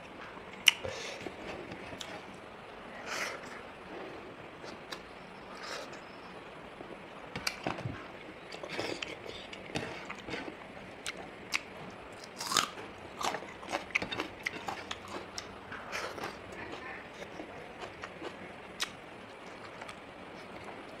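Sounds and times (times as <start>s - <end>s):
person chewing chicken wings: 8.6s - 21.0s.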